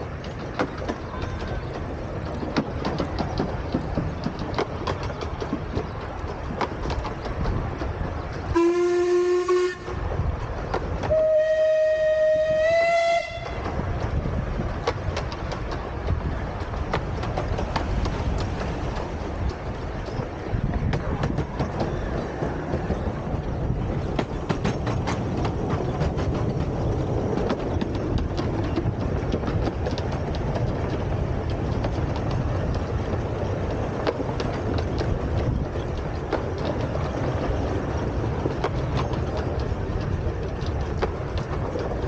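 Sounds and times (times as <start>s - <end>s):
clicks over rail joints: 0.0s - 42.0s
rumble of train wheels on track: 0.0s - 42.0s.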